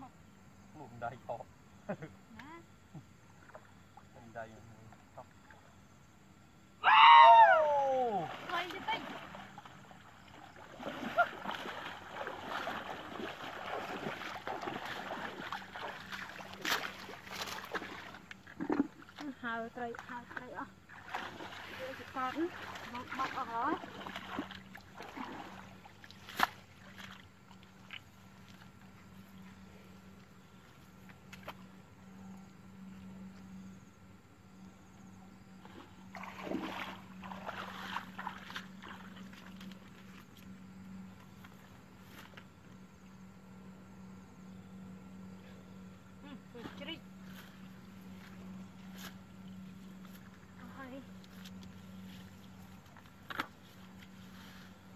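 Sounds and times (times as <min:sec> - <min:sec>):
faint low hum: 0:00.0 - 0:54.9
legs wading through water: 0:08.1 - 0:31.7, 0:35.5 - 0:42.6, 0:46.6 - 0:54.9
hands squelching in wet mud: 0:10.3 - 0:19.3, 0:20.0 - 0:28.7, 0:35.7 - 0:40.5.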